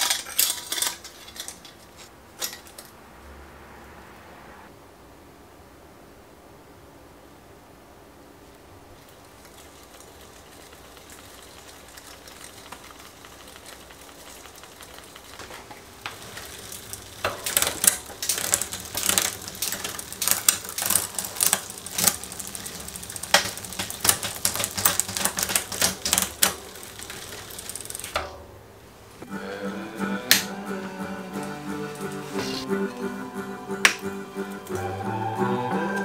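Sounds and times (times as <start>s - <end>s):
bicycle chain clicking: 0.0s - 3.0s, 9.3s - 28.3s
bicycle drivetrain running: 9.0s - 28.3s.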